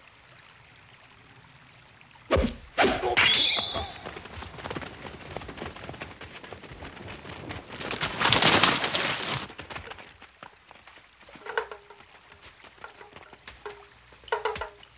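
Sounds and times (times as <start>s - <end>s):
splashing through a stream: 2.2s - 14.8s
scuffling: 3.8s - 14.8s.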